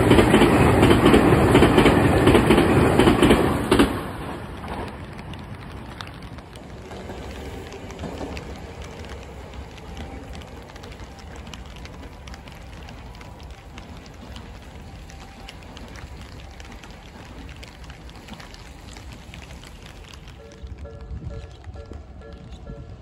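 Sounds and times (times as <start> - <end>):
steady rain falling: 0.0 - 23.0.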